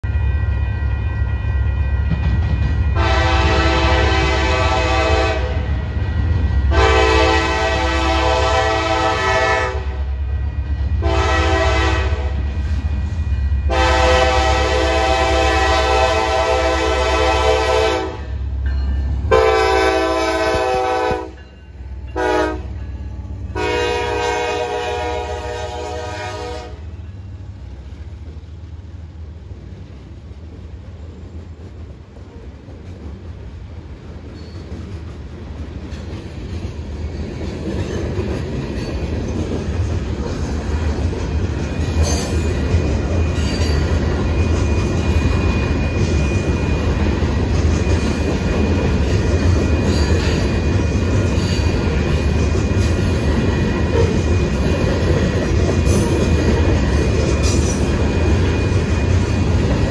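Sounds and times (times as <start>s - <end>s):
train air horn blasts: 2.9s - 5.7s, 6.7s - 10.1s, 11.0s - 12.6s, 13.7s - 18.4s, 19.3s - 21.4s, 22.1s - 22.8s, 23.5s - 27.0s.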